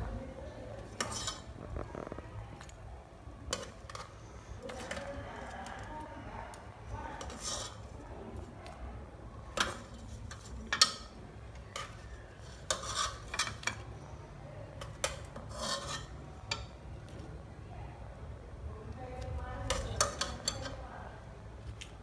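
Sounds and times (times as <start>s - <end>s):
metal spoon scraping metal pot: 0.9s - 2.1s, 7.2s - 7.9s, 11.7s - 13.7s, 15.0s - 16.6s.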